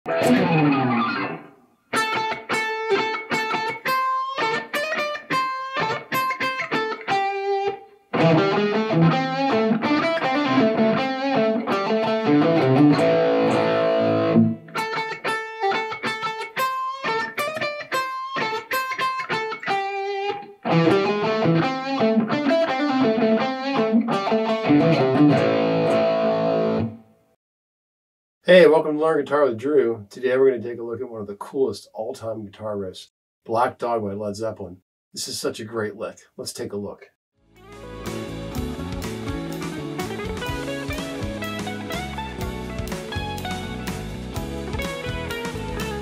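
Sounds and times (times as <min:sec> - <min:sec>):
distorted electric guitar music: 0:00.1 - 0:27.0, 0:37.5 - 0:46.0.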